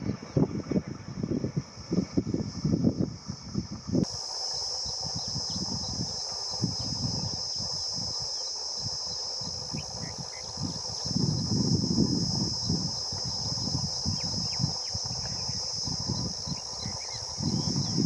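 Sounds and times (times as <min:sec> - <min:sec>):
high-pitched insect drone: 0:00.0 - 0:18.0
wind buffeting: 0:08.8 - 0:18.0
bird chirps: 0:12.7 - 0:18.0.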